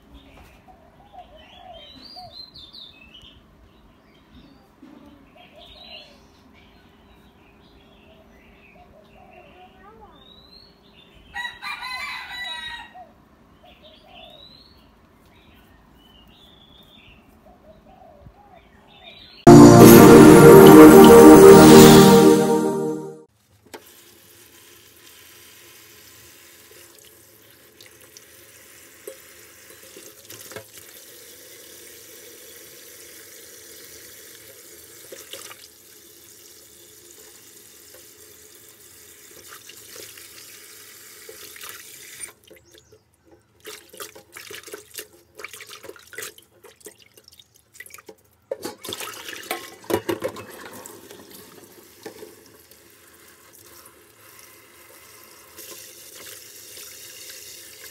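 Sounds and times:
splashes and clatter: 43.6 - 52.4.

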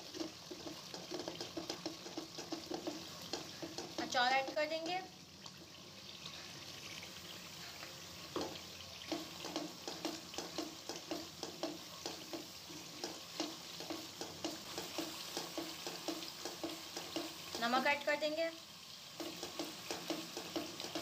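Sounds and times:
food sizzling in oil: 0.0 - 21.0
spatula scraping metal pot: 19.2 - 21.0.

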